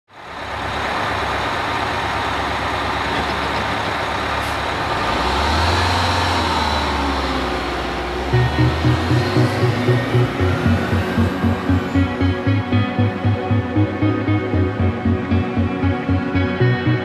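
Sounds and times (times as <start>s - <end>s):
road noise: 0.1s - 17.0s
vehicle engine rumble: 0.1s - 17.0s.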